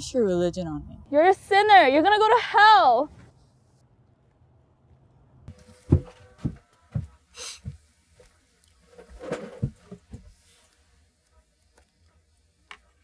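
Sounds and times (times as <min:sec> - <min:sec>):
soft thumps and rustles: 0:05.5 - 0:07.8.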